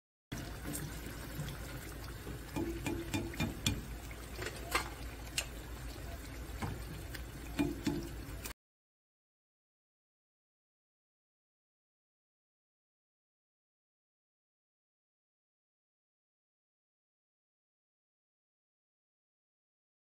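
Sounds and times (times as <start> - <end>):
oil popping and crackling: 0.3 - 8.5
food deep-frying in oil: 0.3 - 8.6.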